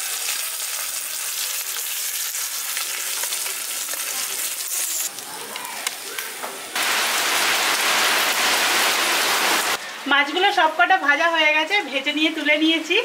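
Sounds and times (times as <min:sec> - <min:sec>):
fish sizzling in hot oil: 0:00.0 - 0:05.2.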